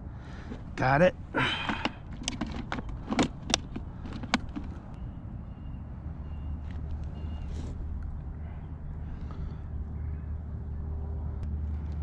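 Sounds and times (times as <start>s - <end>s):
plastic box lid and latches clicking: 1.8s - 4.7s.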